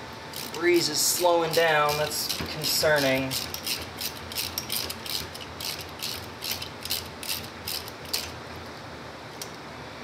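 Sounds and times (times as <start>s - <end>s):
socket ratchet clicking: 1.5s - 8.4s.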